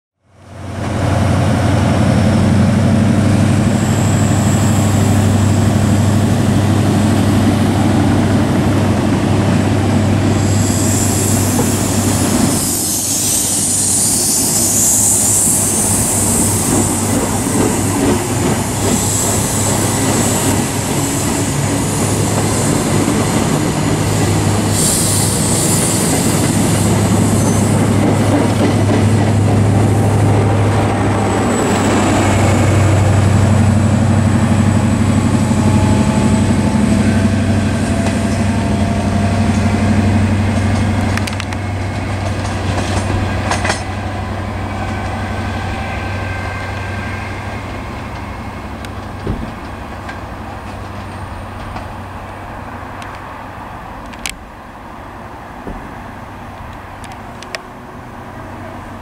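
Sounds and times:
train coaches rolling past: 0.3 - 59.0
high-pitched hiss: 10.2 - 17.5, 24.1 - 27.8
low diesel engine drone: 29.2 - 44.9.

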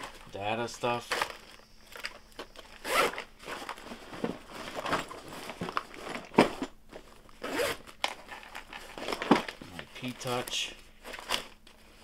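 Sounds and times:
crinkling: 0.0 - 12.0.

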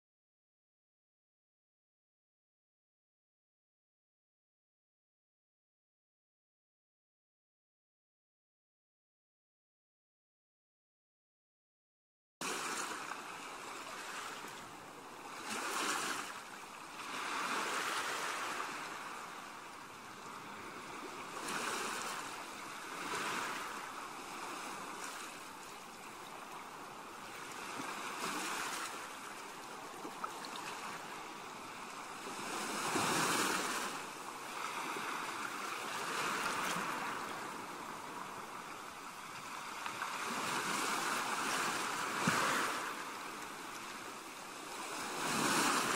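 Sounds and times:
small waves breaking on shore: 12.4 - 45.9.

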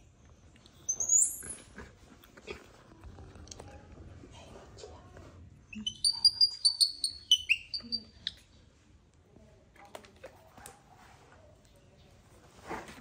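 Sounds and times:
baby monkey squeaking calls: 0.9 - 1.6, 5.7 - 8.4.

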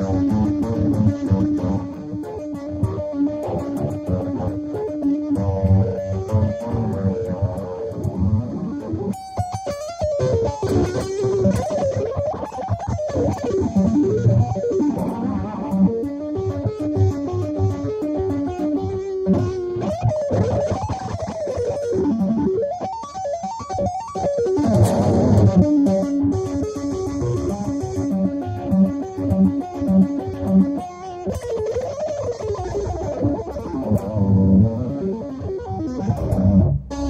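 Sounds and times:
electric guitar shredding: 0.0 - 37.0.

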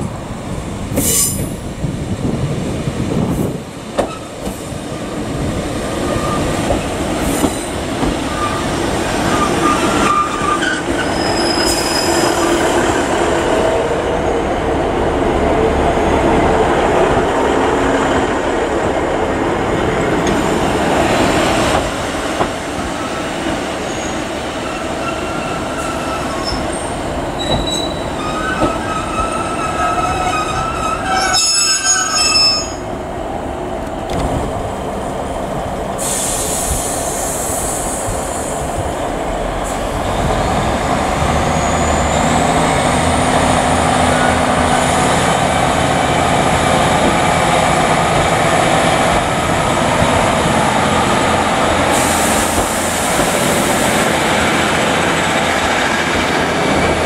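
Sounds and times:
diesel trains running on track: 0.0 - 57.0
high-pitched wheel squeals: 8.3 - 12.4, 23.9 - 32.8.

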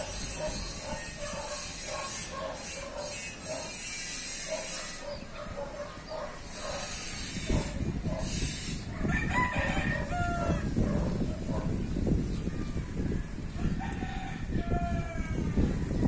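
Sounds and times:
wind buffeting microphone: 0.0 - 3.7, 5.0 - 16.0
breeze rustling leaves: 0.0 - 15.9
rooster crowing: 9.0 - 10.8, 13.6 - 15.6.

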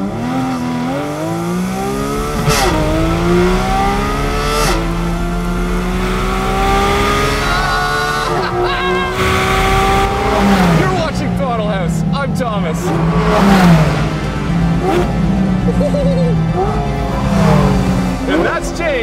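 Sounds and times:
sports car engine accelerating: 0.0 - 19.0
gear shift crack: 0.4 - 11.4.

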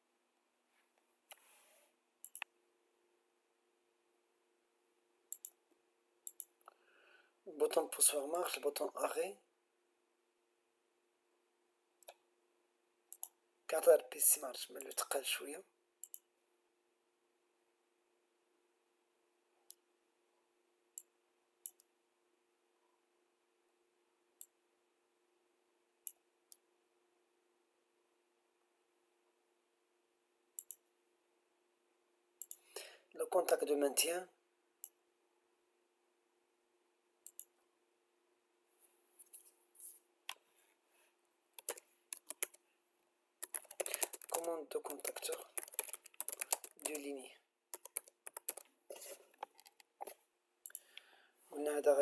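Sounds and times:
computer mouse clicks: 2.2 - 2.5, 5.3 - 5.6, 6.2 - 6.8, 13.1 - 13.4, 16.0 - 16.3, 21.0 - 21.9, 30.6 - 30.9, 32.4 - 32.7, 37.2 - 37.6, 41.6 - 42.6, 43.4 - 47.0, 47.8 - 51.1
mouse buttons clicking: 2.2 - 2.5, 41.6 - 42.6
keyboard keystrokes: 41.6 - 42.6, 43.4 - 47.0, 47.8 - 48.7.

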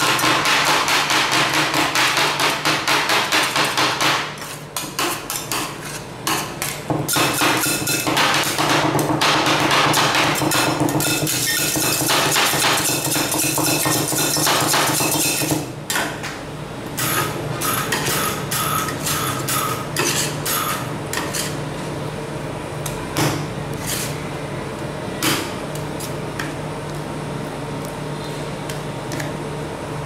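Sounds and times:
metal spatulas chopping and scraping: 0.0 - 16.0, 17.0 - 21.6, 23.2 - 24.2.

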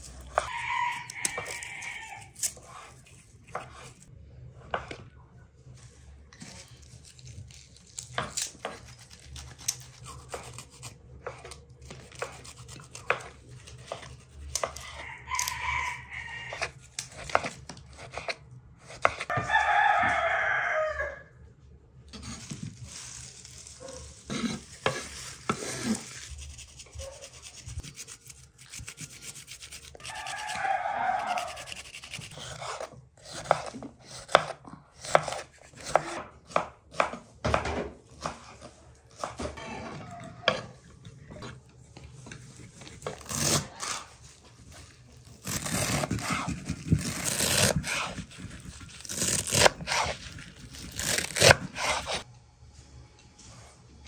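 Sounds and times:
rooster crowing: 0.4 - 2.4, 14.8 - 16.7, 19.3 - 21.4, 30.0 - 31.8
knives on garlic and cutting board: 45.4 - 50.2, 50.8 - 52.2.

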